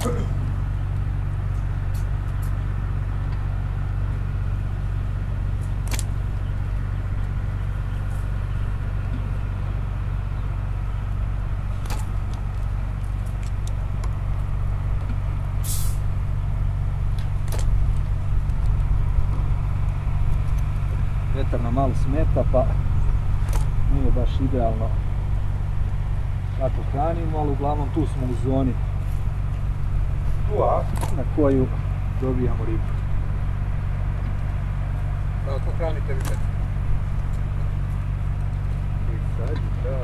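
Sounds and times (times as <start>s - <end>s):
steady low hum: 0.0s - 40.0s
catapult snapping: 5.8s - 6.2s, 11.8s - 12.4s, 17.2s - 18.0s, 23.4s - 23.8s, 36.2s - 36.5s.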